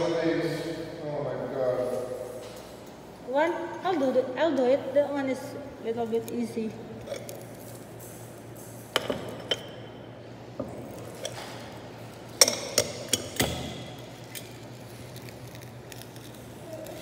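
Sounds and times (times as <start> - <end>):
ceramic bowls clinking: 9.0 - 9.9, 12.3 - 13.8.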